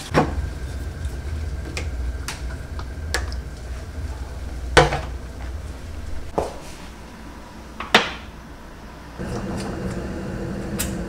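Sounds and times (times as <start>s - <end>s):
low hum: 0.0s - 6.3s, 8.4s - 11.0s.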